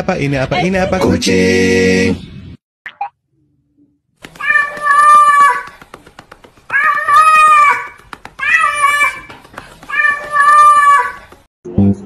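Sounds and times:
cat meowing: 0:04.4 - 0:05.6.

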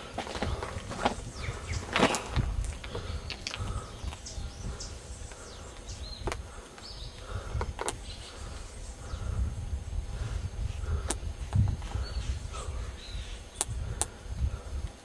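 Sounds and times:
wind rumbling on microphone: 0:00.0 - 0:15.0
sharp clicks: 0:13.6 - 0:14.2.

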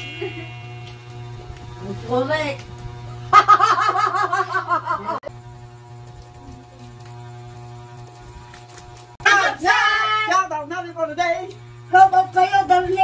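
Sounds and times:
low hum: 0:00.0 - 0:09.0.

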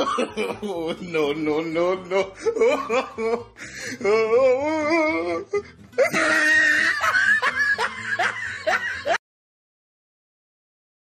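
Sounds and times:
laughter in bursts: 0:00.0 - 0:01.0, 0:02.3 - 0:03.9, 0:06.0 - 0:09.2
music with wavering voice: 0:00.1 - 0:09.2.

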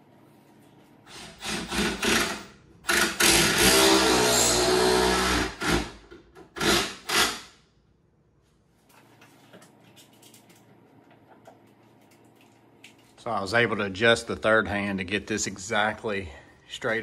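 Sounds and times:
drill driving a screw into wood: 0:01.1 - 0:07.5.

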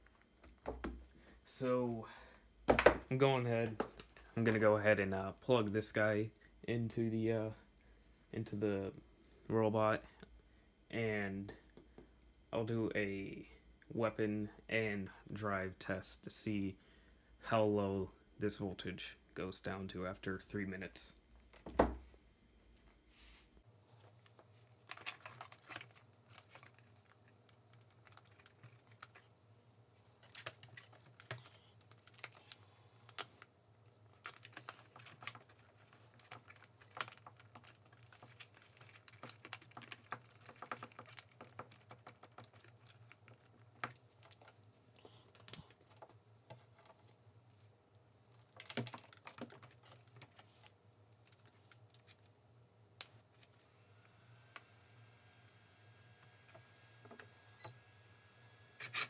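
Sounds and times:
hands handling wires clicking: 0:30.2 - 0:47.1, 0:48.4 - 0:52.3.

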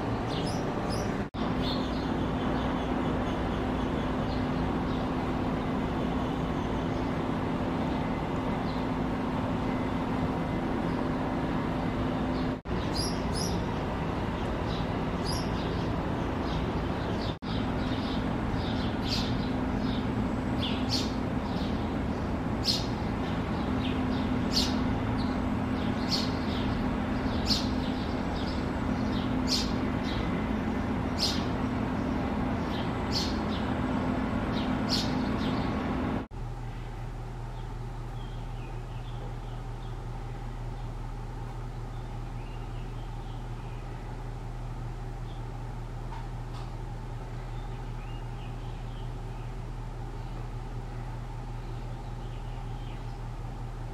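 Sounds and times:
low hum of traffic: 0:00.0 - 0:53.9
sparrow chirping: 0:00.1 - 0:07.2, 0:12.7 - 0:33.8, 0:34.5 - 0:35.8, 0:37.6 - 0:40.1, 0:41.9 - 0:44.0, 0:47.4 - 0:49.6, 0:51.6 - 0:53.3.

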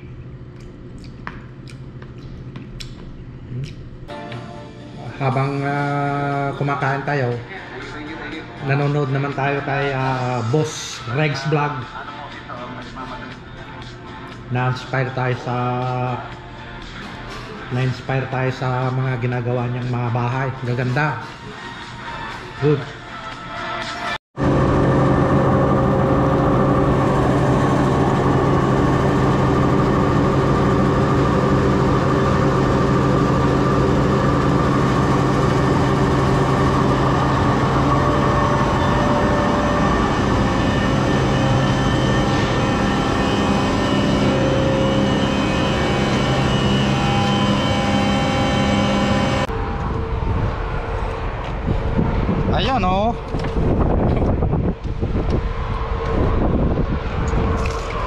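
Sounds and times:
road noise: 0:31.9 - 0:58.0.

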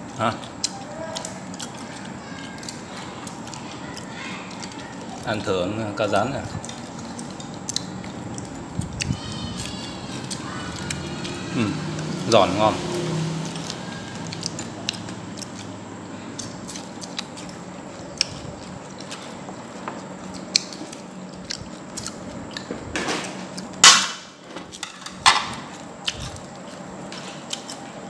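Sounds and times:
chewing crisp fried fish: 0:00.0 - 0:22.8, 0:25.5 - 0:28.0
chopsticks clicking against bowls: 0:00.1 - 0:05.5, 0:06.6 - 0:12.4, 0:13.5 - 0:15.7.

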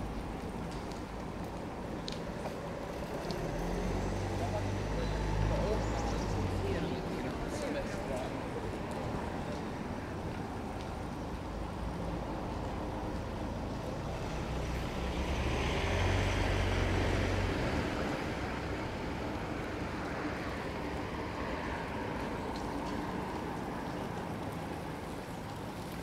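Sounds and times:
road noise: 0:00.0 - 0:26.0
motor vehicle passing: 0:02.8 - 0:09.9, 0:14.0 - 0:22.8.

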